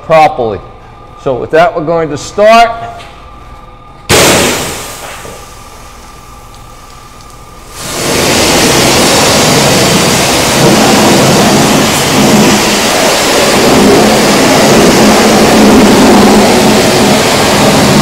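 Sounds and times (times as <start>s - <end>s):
pressure washer spraying water: 4.1s - 5.8s, 7.7s - 18.0s.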